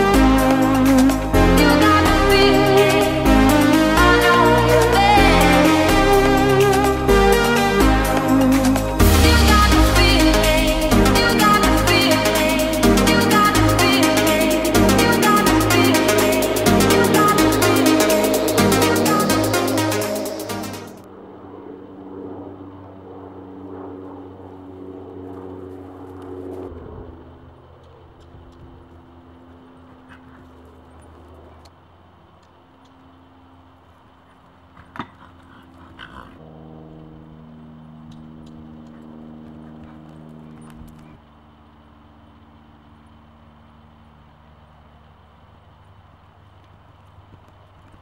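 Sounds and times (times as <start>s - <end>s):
low mechanical hum: 0.0s - 48.0s
horse hooves on sand: 38.0s - 41.2s, 46.6s - 48.0s.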